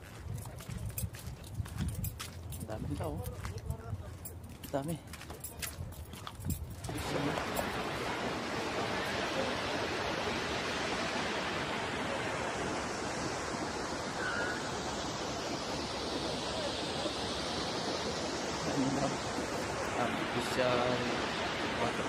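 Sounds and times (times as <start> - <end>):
waterfall rushing: 6.9 - 22.0.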